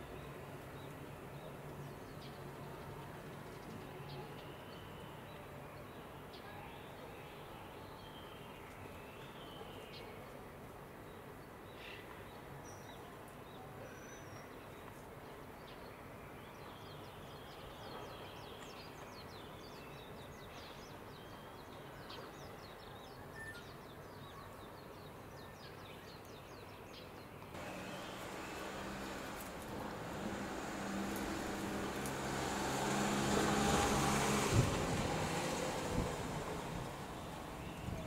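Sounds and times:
small birds twittering: 0:16.4 - 0:38.0
loud steady rushing noise: 0:27.6 - 0:38.0.

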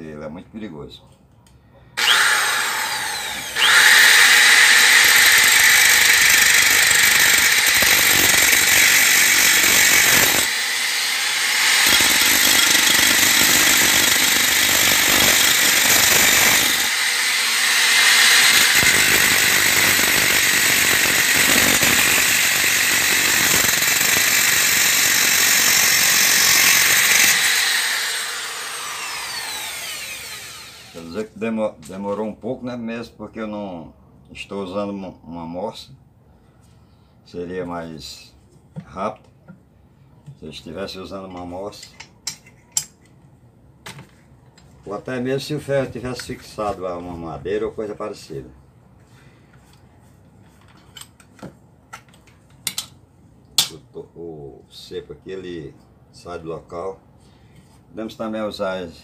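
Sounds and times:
cut-off disc grinding metal rod: 0:02.0 - 0:31.0.

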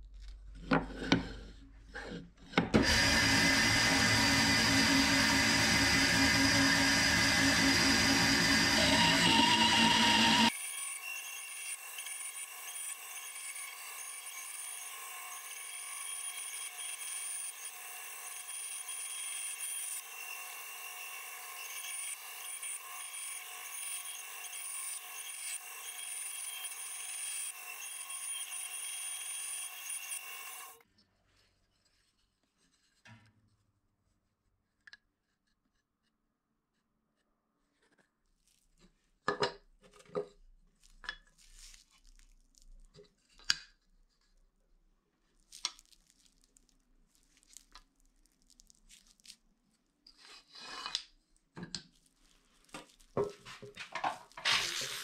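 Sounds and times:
band saw cutting wood: 0:02.7 - 0:30.8, 0:54.4 - 0:55.0.

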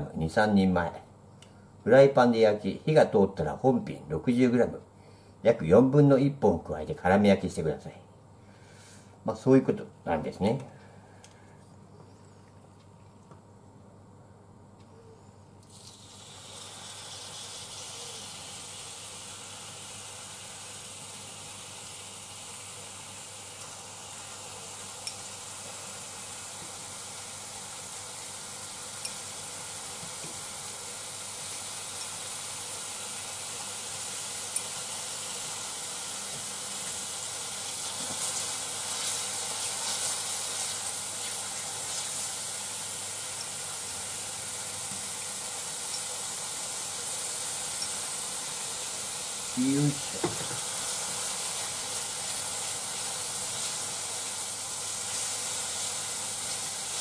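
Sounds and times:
chicken sizzling in frying pan: 0:15.7 - 0:57.0.

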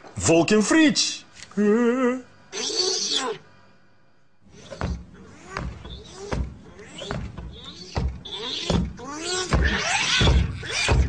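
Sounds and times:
squeaky creaks: 0:04.5 - 0:11.0
heavy comic footstep thuds: 0:04.8 - 0:11.0.

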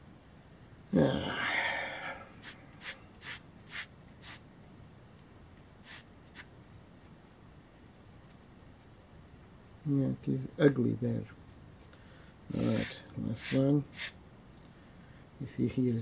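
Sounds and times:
breathy exhale: 0:01.1 - 0:02.3.

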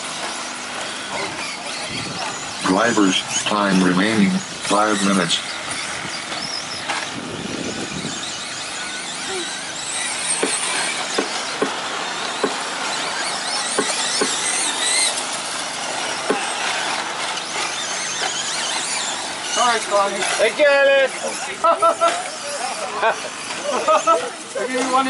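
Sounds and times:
toy truck motors whining: 0:00.0 - 0:25.0
trucks landing with sharp knocks: 0:08.4 - 0:19.5.

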